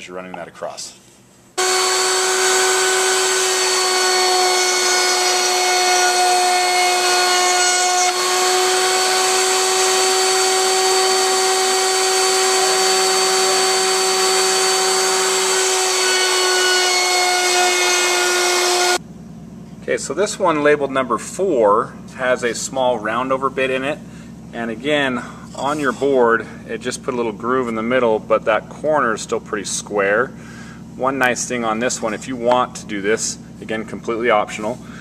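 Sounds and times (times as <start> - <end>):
router whining: 1.6 - 19.0.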